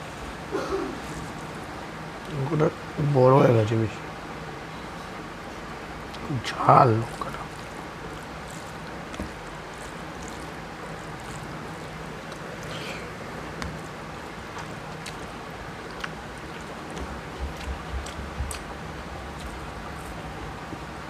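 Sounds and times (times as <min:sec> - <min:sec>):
fingers squishing rice: 0:06.9 - 0:20.9.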